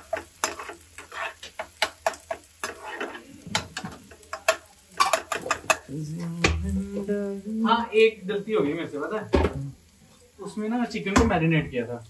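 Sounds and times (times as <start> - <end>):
spatula scraping metal frying pan: 0.0 - 5.9
onions sizzling in oil: 0.0 - 12.0.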